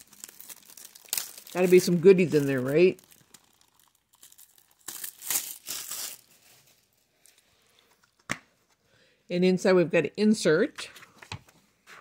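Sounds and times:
plastic shrink wrap crinkling: 0:00.0 - 0:07.5.

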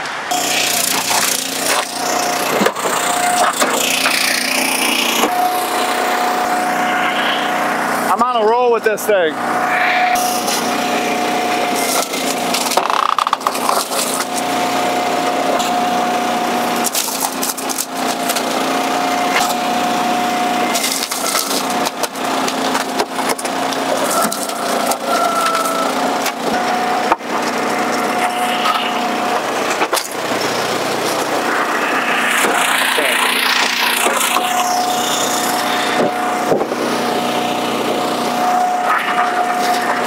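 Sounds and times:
hydraulic whine: 0:00.0 - 0:40.0
log splitter droning: 0:00.0 - 0:40.0
wood cracking and splintering: 0:11.8 - 0:14.5, 0:16.8 - 0:18.5, 0:20.7 - 0:28.1.

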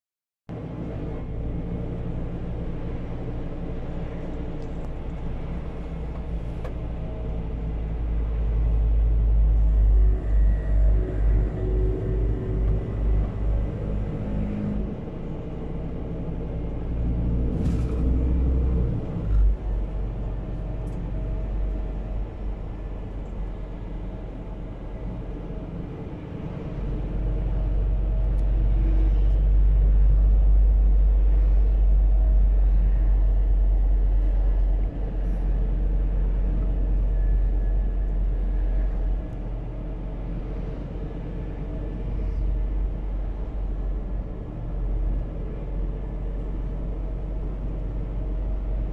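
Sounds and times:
truck engine and road rumble: 0:00.5 - 0:48.9.

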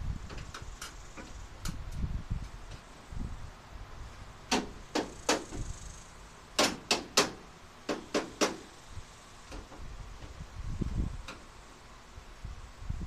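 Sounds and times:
grille knocking and clicking: 0:04.5 - 0:05.7, 0:06.6 - 0:08.7.

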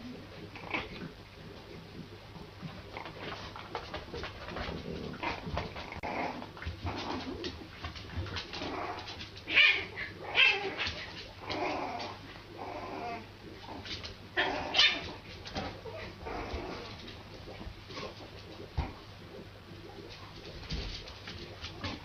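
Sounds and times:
puppy yapping: 0:14.4 - 0:15.2.

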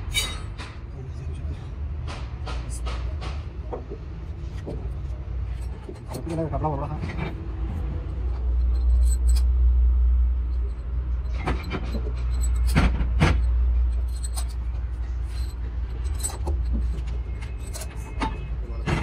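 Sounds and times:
metallic clinks and knocks: 0:08.3 - 0:09.6, 0:10.4 - 0:19.0.

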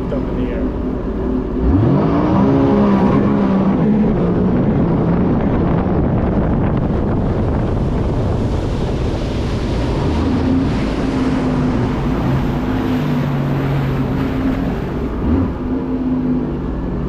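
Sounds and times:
watercraft engine running hard: 0:00.0 - 0:17.0
wind buffeting on microphone: 0:00.0 - 0:17.0
rushing water spray: 0:07.2 - 0:15.9.

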